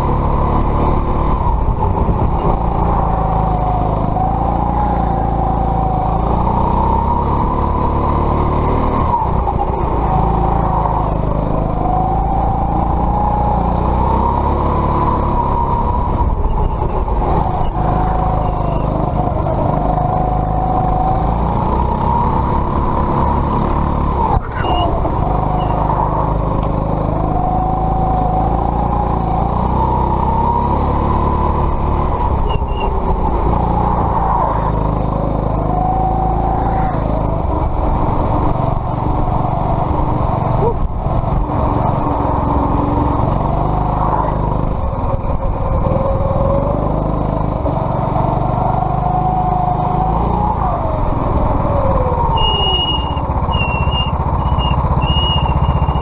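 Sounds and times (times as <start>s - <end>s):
kart engine revving: 0.0s - 56.0s
high squeal: 16.4s - 19.2s, 24.3s - 26.5s, 32.4s - 34.8s, 52.0s - 56.0s.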